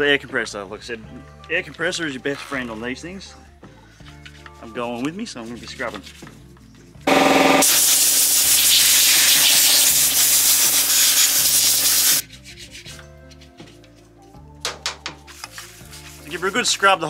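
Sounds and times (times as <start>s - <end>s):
compressed air hissing: 7.4s - 12.2s
toothbrush scrubbing: 7.9s - 13.7s, 15.4s - 16.6s.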